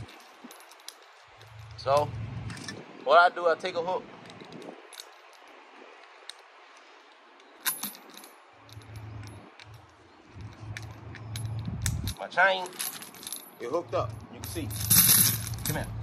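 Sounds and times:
chain links clinking: 0.0s - 2.8s, 4.2s - 16.0s
low steady hum: 0.0s - 3.0s, 7.0s - 16.0s.

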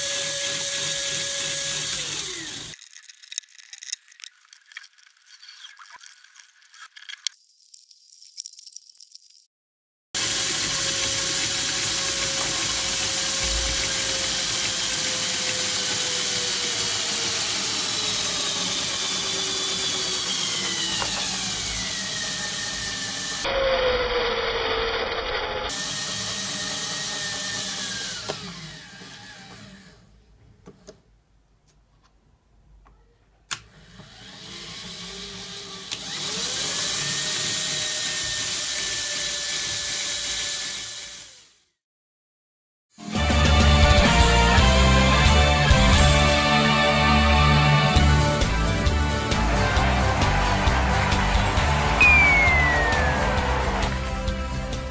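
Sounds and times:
small motor whirring through gears: 0.0s - 9.4s, 10.2s - 23.6s, 33.7s - 41.8s.

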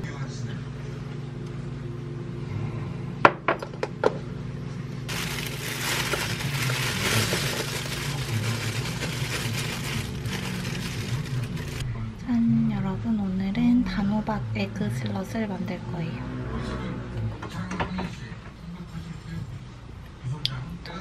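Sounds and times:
plastic bag crinkling: 5.1s - 11.9s.

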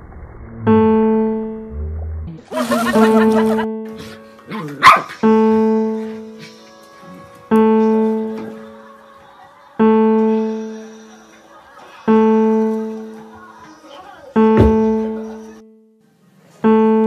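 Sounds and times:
keyboard note ringing: 14.4s - 15.8s.

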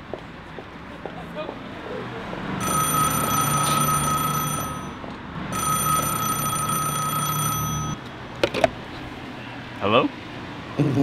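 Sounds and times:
payphone ringing: 2.6s - 8.1s.

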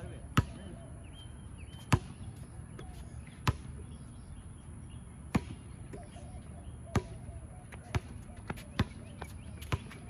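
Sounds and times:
basketball bouncing on hard court: 0.4s - 0.6s, 1.8s - 2.2s, 5.3s - 5.7s, 6.9s - 7.2s, 7.8s - 10.0s.

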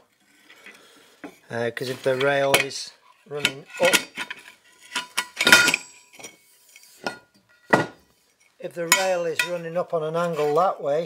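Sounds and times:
metal knocks and clinks ringing: 4.9s - 6.4s, 8.8s - 9.6s.

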